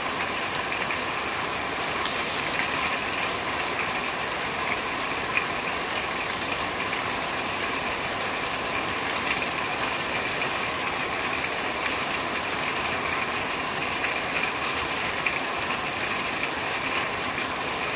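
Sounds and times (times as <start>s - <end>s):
rain on a corrugated roof: 0.0s - 17.9s.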